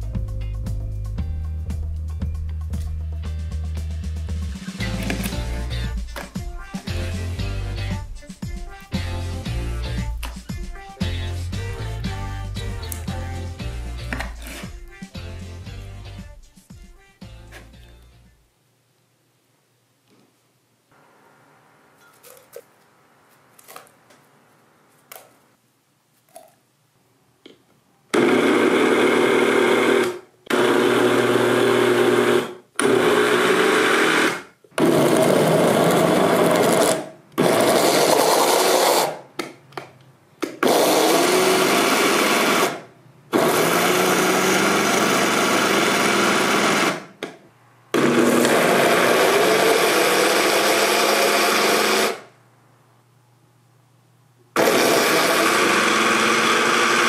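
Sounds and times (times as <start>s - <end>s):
blender churning: 28.1s - 39.2s, 40.4s - 47.1s, 48.0s - 52.3s, 54.6s - 57.0s.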